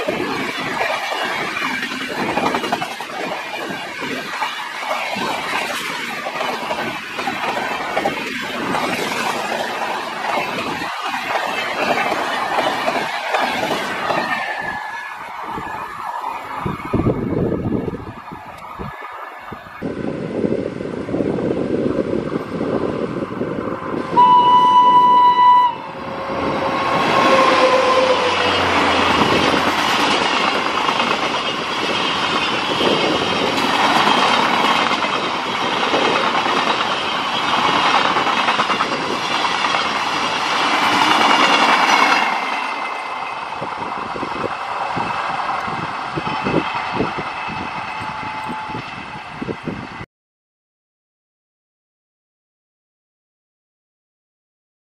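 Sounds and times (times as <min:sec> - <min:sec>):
train wheels on rails: 0:00.0 - 0:50.0
locomotive horn: 0:24.1 - 0:29.0.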